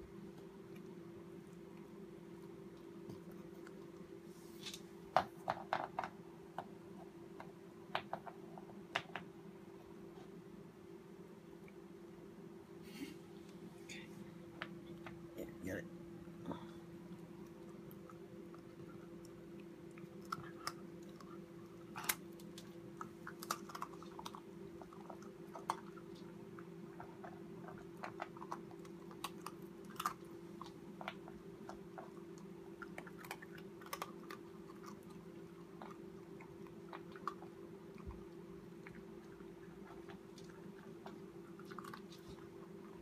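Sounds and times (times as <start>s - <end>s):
steady low hum: 0.0s - 43.0s
puppy chewing a treat: 17.0s - 43.0s.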